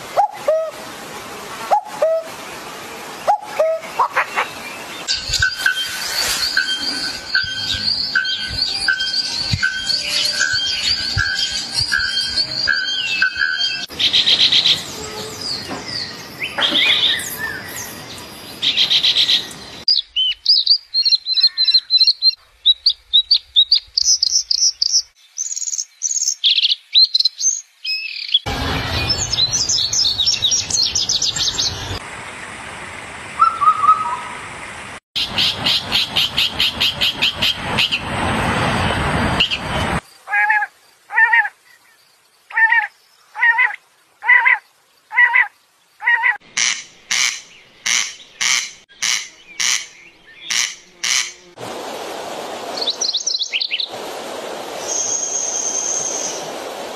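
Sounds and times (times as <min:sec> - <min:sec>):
birds singing and warbling: 0:03.0 - 0:32.0, 0:35.2 - 0:38.1, 0:39.4 - 0:51.5, 0:52.8 - 0:53.9.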